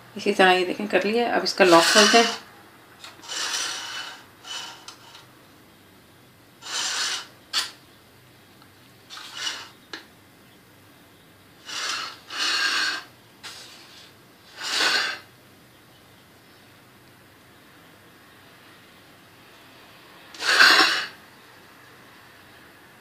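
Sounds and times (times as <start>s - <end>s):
spoon scraping a cake pan: 1.6s - 2.4s, 3.0s - 5.3s, 6.7s - 7.8s, 9.1s - 9.8s.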